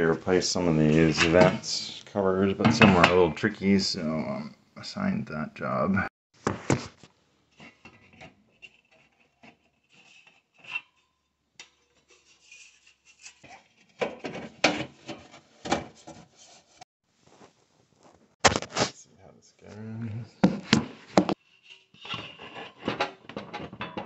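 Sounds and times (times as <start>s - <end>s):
metal vent cover scraping: 0.6s - 2.0s, 12.1s - 16.8s, 21.6s - 24.0s.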